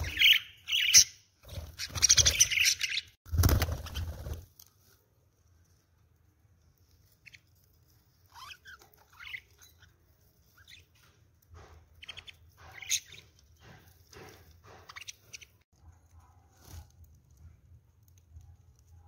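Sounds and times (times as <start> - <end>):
budgerigars chirping: 1.8 - 3.2, 12.0 - 13.3, 14.7 - 15.6.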